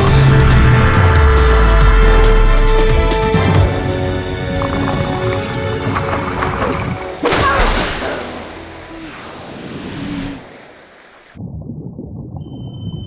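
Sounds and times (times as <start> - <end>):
loud water-like rush: 4.0 - 11.4.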